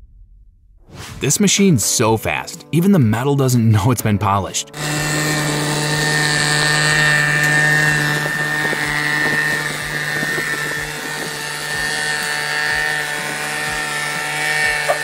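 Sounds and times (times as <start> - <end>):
milling machine drone and whine: 4.8 - 15.0.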